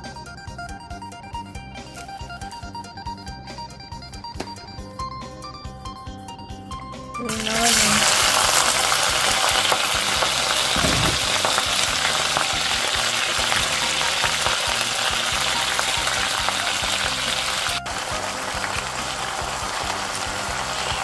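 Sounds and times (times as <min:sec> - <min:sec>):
onions sizzling in a wok: 0:07.2 - 0:21.0.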